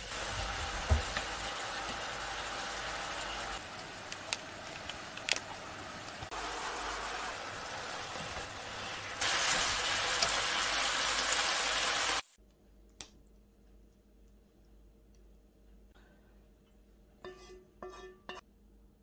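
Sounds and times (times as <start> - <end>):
noodles sizzling in frying pan: 0.0 - 12.4.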